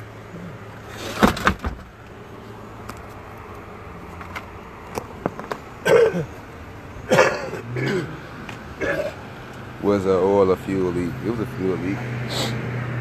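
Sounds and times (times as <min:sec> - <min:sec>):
vehicle hum: 0:00.0 - 0:13.0.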